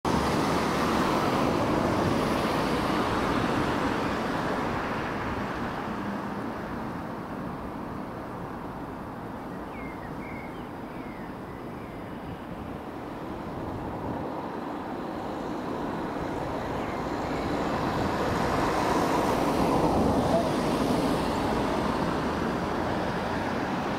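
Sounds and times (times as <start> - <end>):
rushing vehicle noise: 0.1 - 23.9
bird chirps: 9.5 - 12.5.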